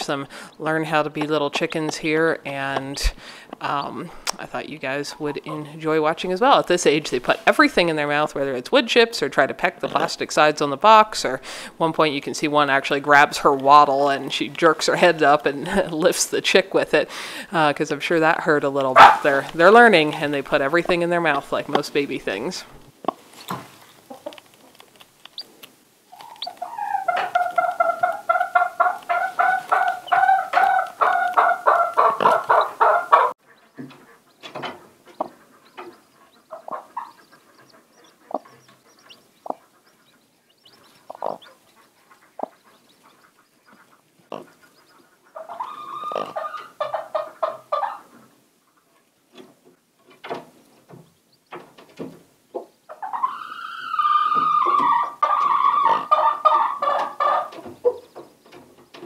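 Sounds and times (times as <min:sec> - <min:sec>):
hen clucking: 0:00.0 - 0:49.1, 0:52.5 - 0:59.0
taps and scratches in shavings: 0:23.0 - 0:32.8.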